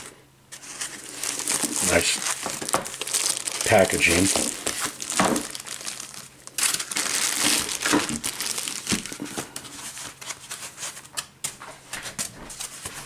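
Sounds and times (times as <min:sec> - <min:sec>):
plastic film crinkling: 0:00.0 - 0:13.0.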